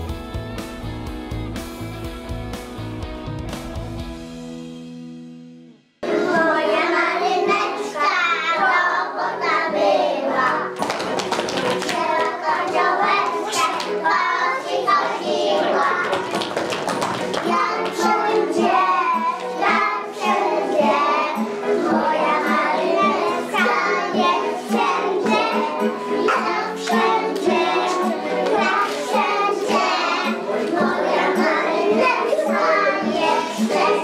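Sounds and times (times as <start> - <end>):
children singing: 6.0 - 34.0
instrumental accompaniment: 9.5 - 34.0
hand claps: 10.8 - 14.0, 15.9 - 18.5, 26.3 - 29.1.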